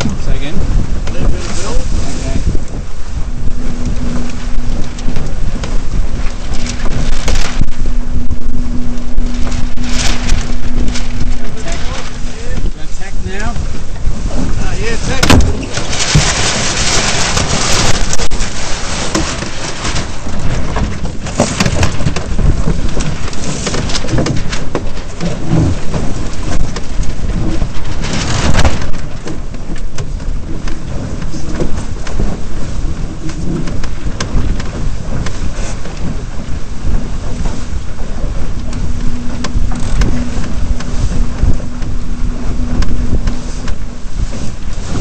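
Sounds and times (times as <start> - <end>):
steady low hum: 0.0 - 45.0
water rushing along hull: 0.0 - 45.0
wind buffeting microphone: 0.0 - 45.0
hull thumping on chop: 13.5 - 32.6, 33.2 - 45.0.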